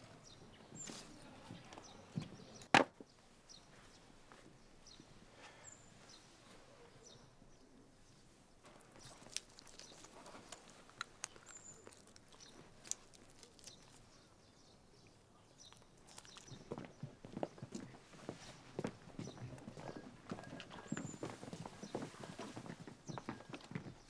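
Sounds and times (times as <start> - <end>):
faint outdoor ambience: 0.0 - 24.0.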